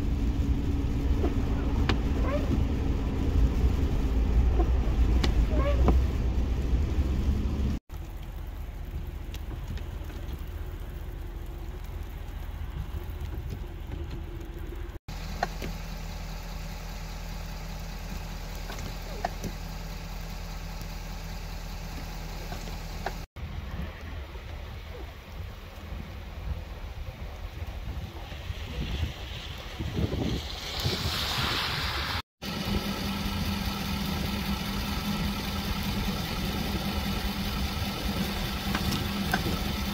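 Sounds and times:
car engine running: 0:00.0 - 0:23.3, 0:32.4 - 0:39.9
low hum: 0:00.0 - 0:29.6, 0:31.4 - 0:39.9.

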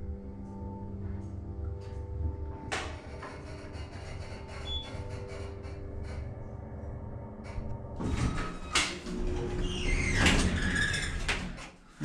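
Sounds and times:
sliding doors squealing open: 0:08.0 - 0:11.6.

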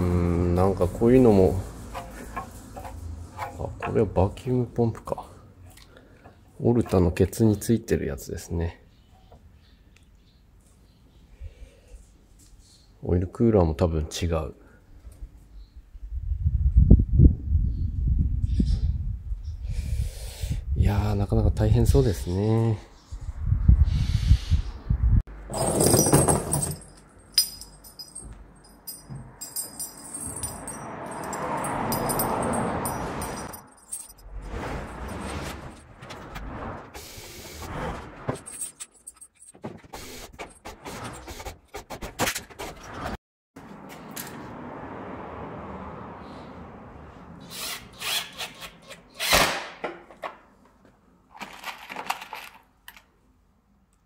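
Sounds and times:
wood and metal knocks and rattles: 0:01.8 - 0:04.1, 0:25.5 - 0:27.0, 0:38.3 - 0:42.9
metal chain rattling: 0:25.5 - 0:34.3, 0:38.4 - 0:39.6.

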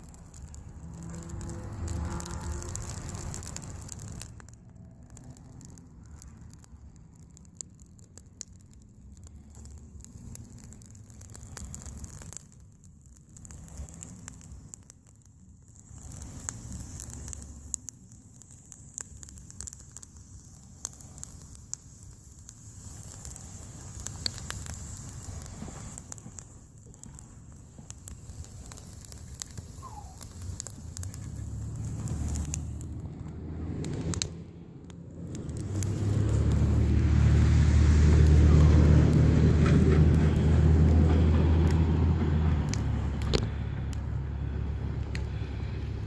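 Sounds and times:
low rumble: 0:00.0 - 0:06.9, 0:29.8 - 0:46.0
fire crackling and popping: 0:00.0 - 0:46.0.

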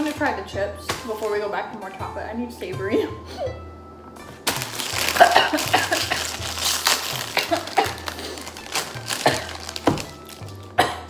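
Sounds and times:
plastic snack bag crinkling: 0:04.4 - 0:10.8.

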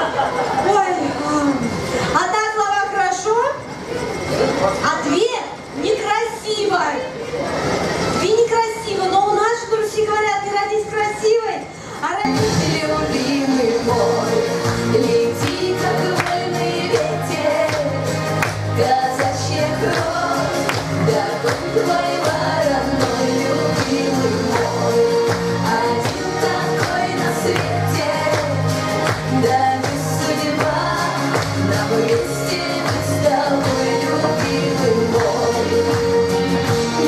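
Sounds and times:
woman singing into a microphone: 0:12.2 - 0:35.8
amplified backing music with beat: 0:12.2 - 0:37.0.

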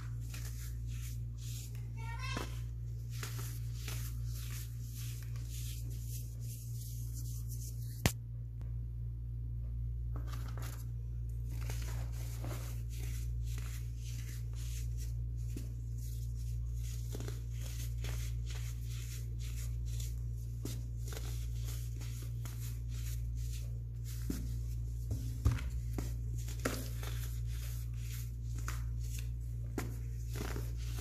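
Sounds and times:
low hum: 0:00.0 - 0:16.8.

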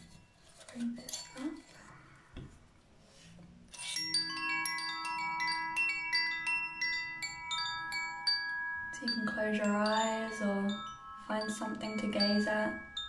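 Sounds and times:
tube chime notes ringing: 0:03.7 - 0:13.0.

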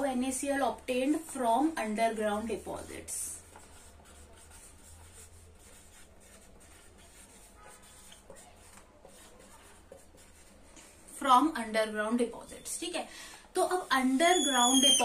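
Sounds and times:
marker scratching on whiteboard: 0:01.9 - 0:11.0, 0:13.6 - 0:15.0.

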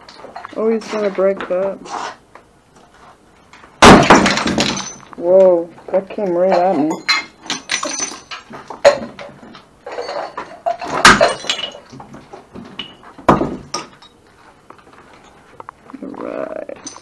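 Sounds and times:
broken dishes and glass clattering: 0:03.8 - 0:05.1, 0:06.4 - 0:14.2, 0:16.8 - 0:17.0.

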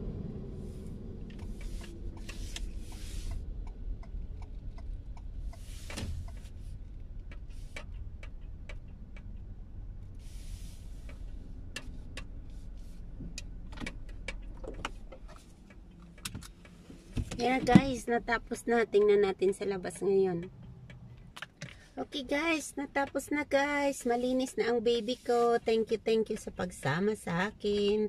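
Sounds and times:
car engine and road rumble: 0:00.0 - 0:28.0
light ticks and clicks: 0:01.3 - 0:10.1, 0:11.0 - 0:18.1, 0:18.9 - 0:21.8.

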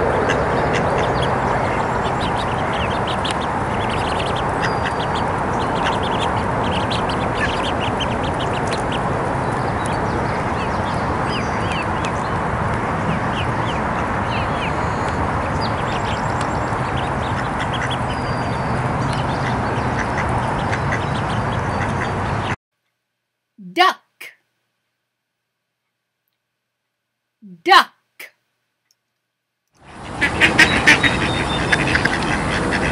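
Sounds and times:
ducklings peeping: 0:00.0 - 0:22.6, 0:29.8 - 0:32.9.

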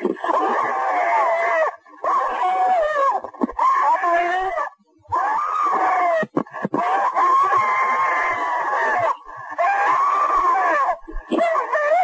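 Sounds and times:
old woman wailing: 0:03.6 - 0:12.0.

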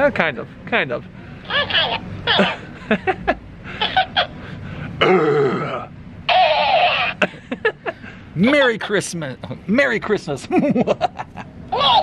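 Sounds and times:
talking toy playing back laughter: 0:01.5 - 0:03.2, 0:03.8 - 0:04.4, 0:06.3 - 0:07.8, 0:10.6 - 0:12.0
man laughing in short bursts: 0:06.8 - 0:08.0.

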